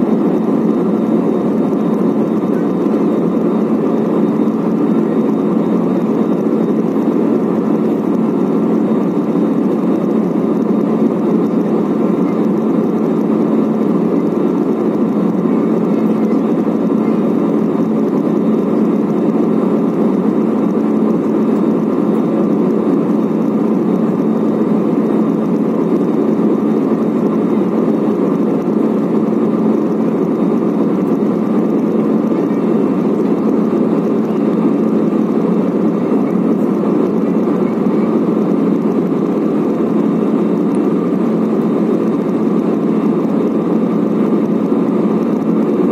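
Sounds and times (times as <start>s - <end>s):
jet engine cabin roar: 0.0s - 45.9s.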